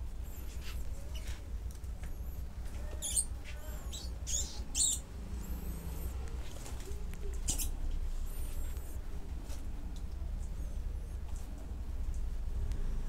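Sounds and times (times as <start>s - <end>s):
steady low hum: 0.0s - 13.0s
mice squeaking: 0.2s - 9.0s.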